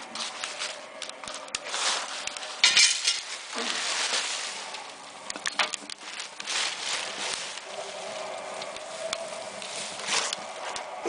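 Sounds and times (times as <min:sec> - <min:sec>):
crackling: 0:00.0 - 0:11.0
metal tongs scraping cans: 0:02.4 - 0:04.2.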